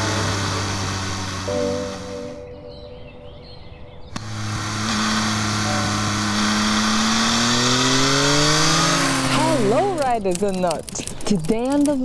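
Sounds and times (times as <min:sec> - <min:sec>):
motorcycle engine accelerating: 0:00.0 - 0:02.5, 0:04.1 - 0:10.4.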